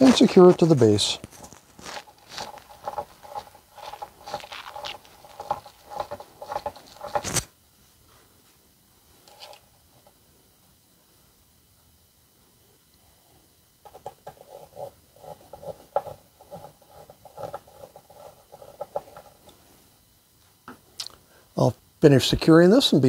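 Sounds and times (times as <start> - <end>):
faint handling sounds: 0.0 - 10.2
screwdriver turning screw: 1.8 - 7.5.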